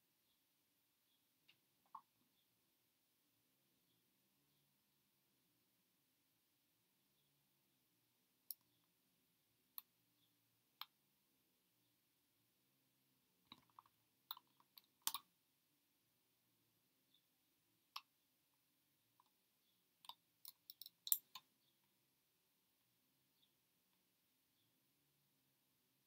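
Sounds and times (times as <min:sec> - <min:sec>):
computer mouse clicks: 0:13.5 - 0:15.3.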